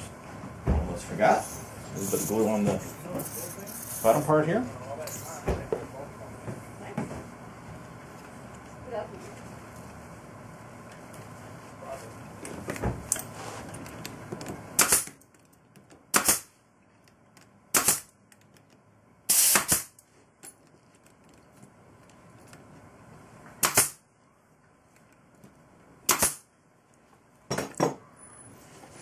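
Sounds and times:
nail gun shots into wood: 14.8 - 15.2, 16.1 - 16.5, 17.7 - 18.2, 19.3 - 20.0, 23.6 - 24.0, 26.1 - 26.5.

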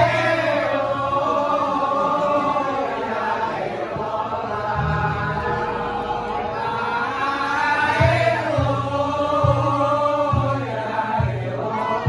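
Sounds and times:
person singing: 4.5 - 12.0
gamelan music: 4.8 - 7.0
low gong ringing: 4.8 - 7.0.

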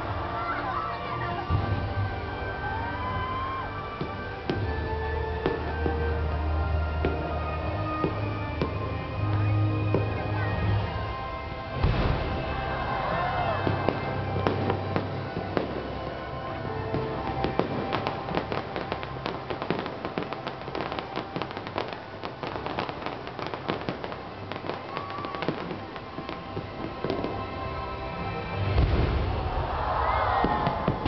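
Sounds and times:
fireworks crackling and banging: 0.0 - 31.0
show music: 0.0 - 31.0
deep booming firework burst: 11.7 - 15.8, 28.7 - 31.0.

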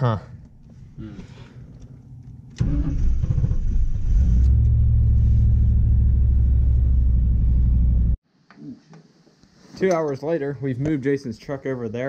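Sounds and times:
car engine starting and rumbling: 2.5 - 8.2.

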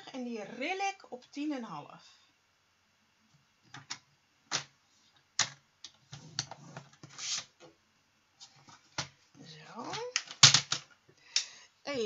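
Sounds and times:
scoring blade scraping: 6.6 - 7.5.

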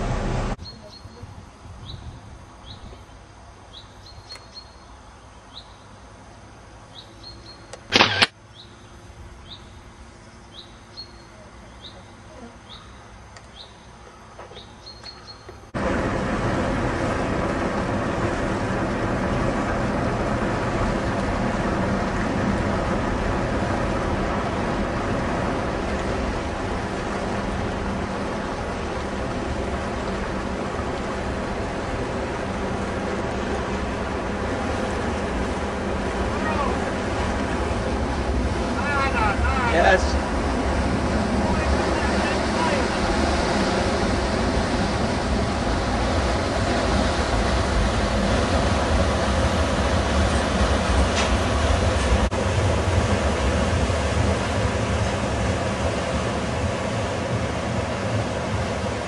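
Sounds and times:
ship diesel engines droning: 0.0 - 1.6, 2.4 - 59.0
water wash: 0.0 - 1.6, 15.7 - 59.0.

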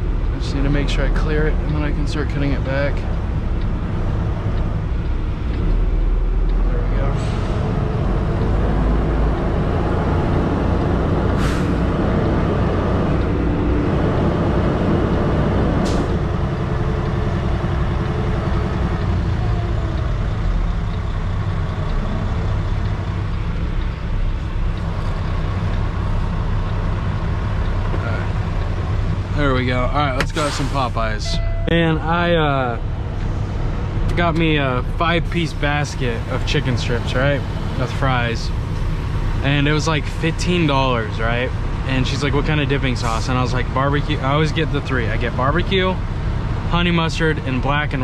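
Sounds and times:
diesel truck engine running: 0.0 - 48.0
air brake hisses: 11.4 - 11.9, 30.3 - 31.0.

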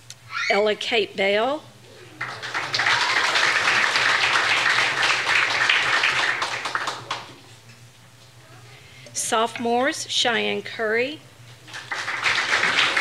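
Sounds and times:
audience applauding: 2.2 - 7.4, 11.7 - 13.0.

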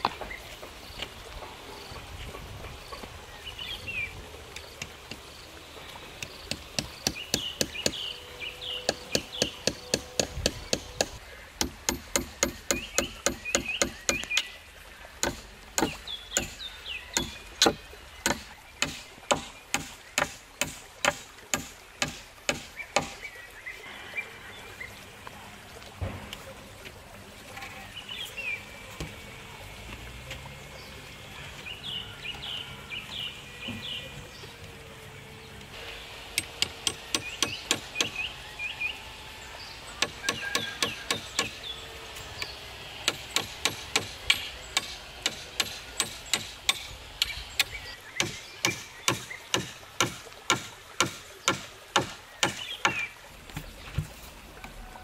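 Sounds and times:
birds chirping: 0.0 - 55.0
hammer driving nails into logs: 6.2 - 8.0, 8.8 - 14.5, 15.2 - 16.6, 17.2 - 23.2, 36.3 - 38.2, 40.0 - 41.6, 43.0 - 53.0.

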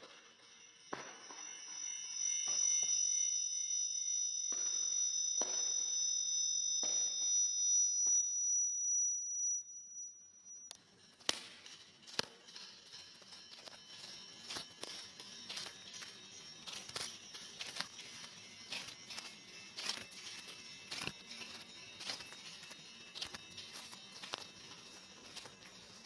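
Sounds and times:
high-pitched audio feedback ringing: 0.0 - 26.0
scattered clicks: 10.7 - 26.0.

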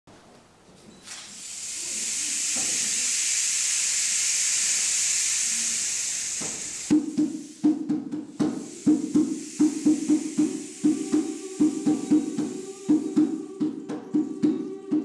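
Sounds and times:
rain stick trickling hiss: 1.0 - 13.8
hand drum strikes: 6.9 - 15.0.

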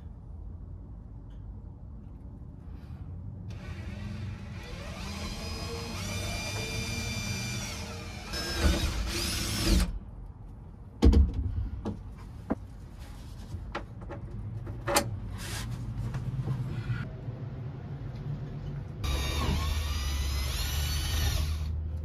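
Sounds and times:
cordless drill whining: 3.5 - 9.9, 19.0 - 21.7.

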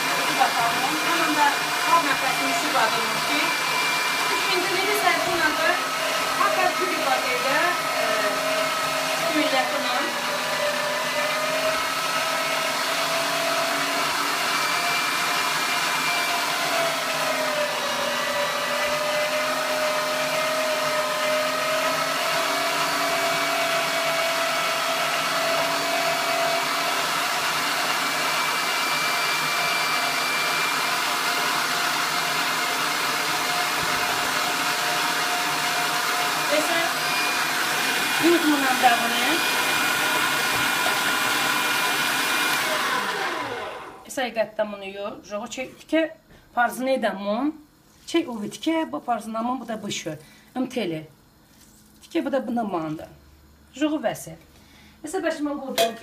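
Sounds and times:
electric meat grinder running: 0.0 - 44.1.

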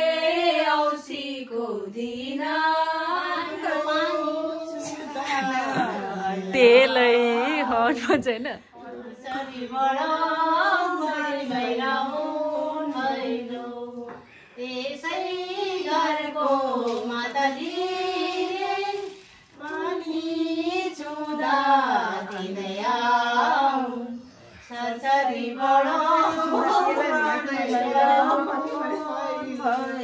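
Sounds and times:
women and girls singing: 0.0 - 30.0.

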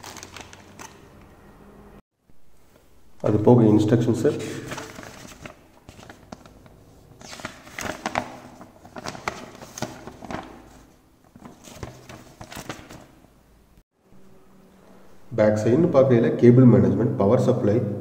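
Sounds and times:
paper rustling and crinkling: 0.0 - 1.1, 4.6 - 13.2.

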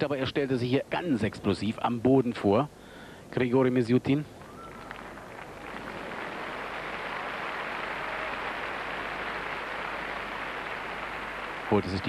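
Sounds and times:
crowd applauding: 4.4 - 12.0.

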